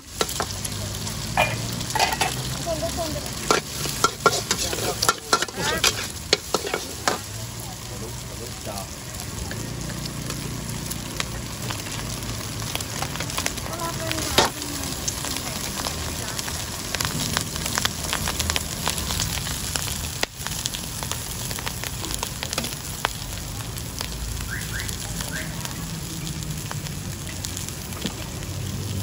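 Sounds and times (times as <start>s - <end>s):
stir-fry sizzling in a wok: 0.0s - 29.0s
vegetables clacking into wok: 0.1s - 2.6s, 3.2s - 7.3s.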